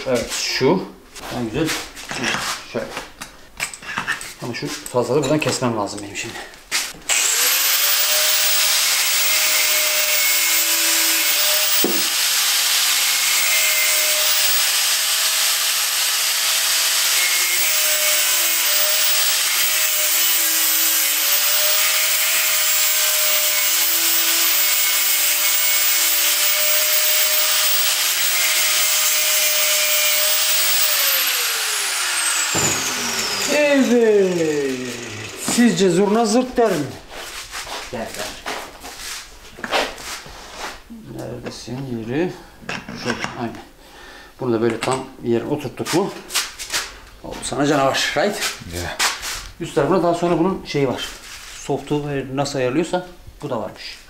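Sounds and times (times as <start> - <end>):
power tool cutting whine: 7.1 - 36.0
sharp knock: 32.5 - 32.9.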